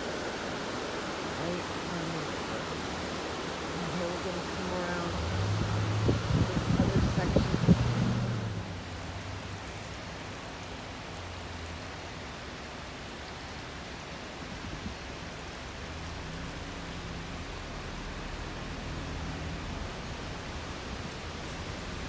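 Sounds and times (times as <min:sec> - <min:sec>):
car interior road rush: 0:03.7 - 0:10.4, 0:15.5 - 0:22.0.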